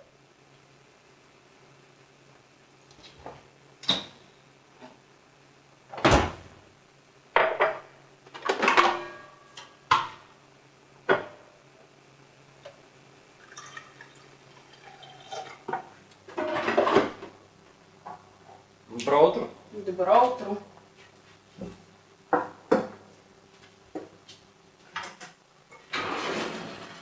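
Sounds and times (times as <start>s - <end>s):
dishes knocking and clattering: 7.4s - 7.9s, 15.2s - 17.3s, 22.3s - 23.0s
coffee pouring into a mug: 13.4s - 15.9s.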